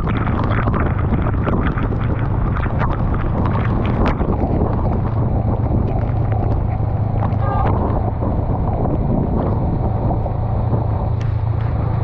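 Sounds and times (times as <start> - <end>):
raindrops ticking: 0.0 - 8.2
motorcycle engine drone: 0.0 - 12.0
wind buffeting microphone: 0.0 - 12.0.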